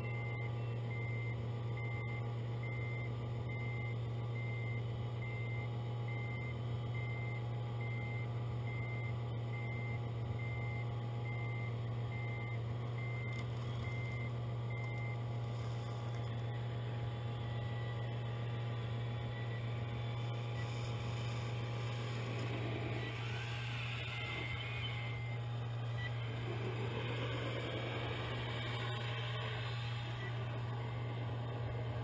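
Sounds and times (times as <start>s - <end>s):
diesel engine drone: 0.0s - 32.0s
rising whines: 15.7s - 32.0s
reversing beeper: 20.4s - 31.4s.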